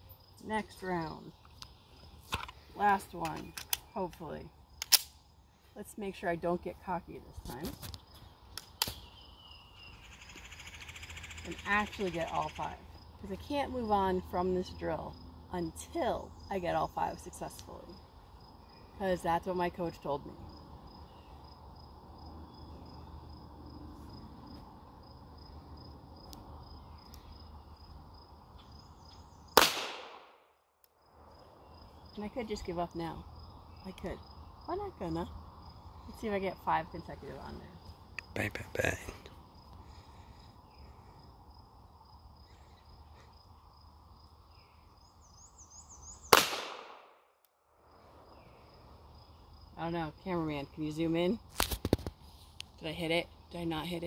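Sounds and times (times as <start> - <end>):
insects chirping in a trill: 0.0 - 54.0
pistol shot: 29.6 - 30.4, 46.3 - 47.2.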